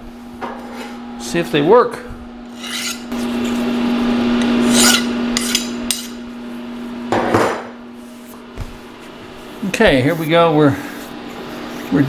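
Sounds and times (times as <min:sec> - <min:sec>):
steady machine hum: 0:00.0 - 0:12.0
metal scraping on metal: 0:02.5 - 0:03.8, 0:04.6 - 0:06.2.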